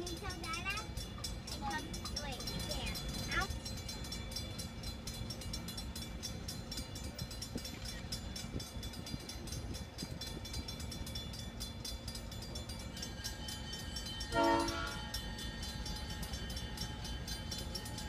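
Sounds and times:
diesel locomotive idling: 0.0 - 18.0
locomotive horn blast: 14.3 - 15.2.

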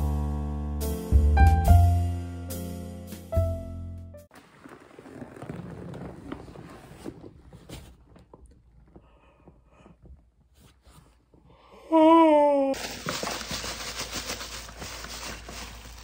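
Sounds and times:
rustling in upholstered chair: 4.3 - 8.3, 12.8 - 16.0.

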